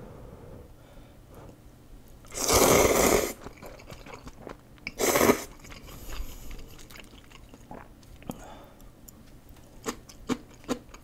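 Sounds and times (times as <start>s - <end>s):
person slurping noodles: 2.3s - 7.0s
person chewing: 2.3s - 8.4s, 9.0s - 11.0s.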